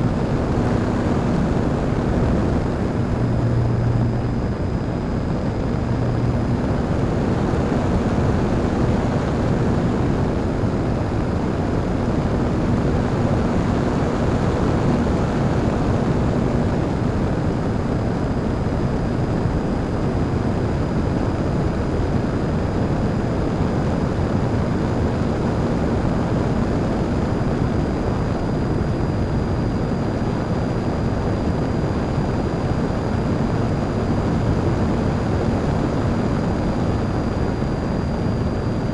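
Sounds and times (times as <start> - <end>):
air rushing over microphone: 0.0 - 17.8
electric motor and propeller running: 0.0 - 38.9
faint hum: 0.0 - 38.9.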